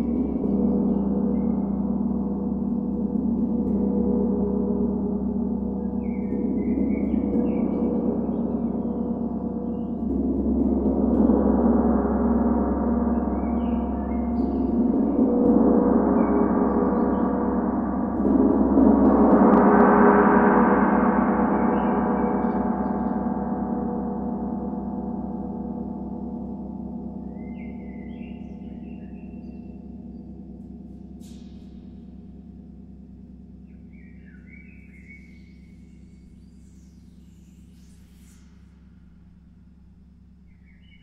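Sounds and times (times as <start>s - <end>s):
large gong shimmering: 0.0s - 27.1s.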